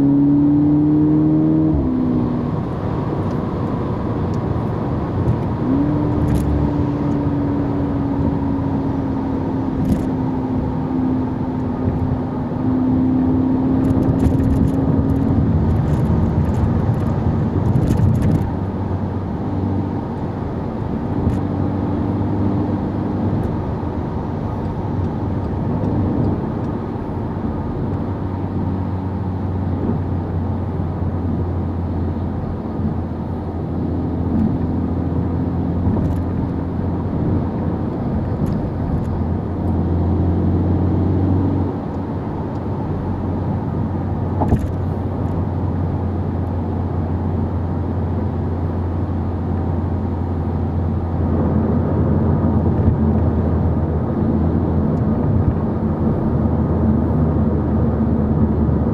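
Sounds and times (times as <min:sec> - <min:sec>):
car engine hum: 0:00.0 - 0:58.9
tyre and road noise: 0:00.0 - 0:58.9.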